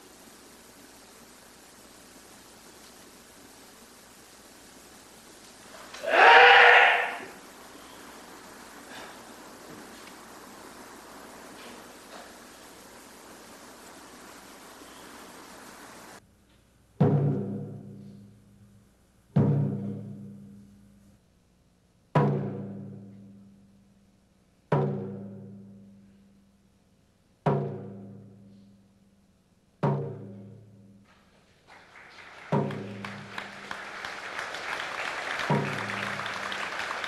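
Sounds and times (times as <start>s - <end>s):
taiko drum booms: 17.0s - 18.4s, 19.3s - 20.6s, 22.1s - 23.4s, 24.7s - 25.9s, 27.4s - 28.4s, 29.8s - 30.9s, 32.4s - 33.8s, 35.1s - 36.6s
applause: 31.5s - 37.0s.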